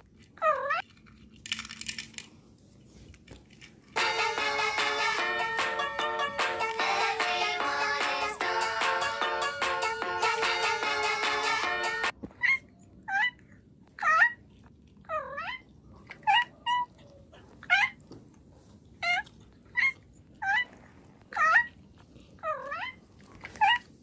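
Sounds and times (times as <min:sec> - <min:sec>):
cat eating crunchy food: 0:00.0 - 0:04.0, 0:13.0 - 0:24.0
background music: 0:04.0 - 0:12.1
cat meowing: 0:15.1 - 0:17.0, 0:19.0 - 0:21.8.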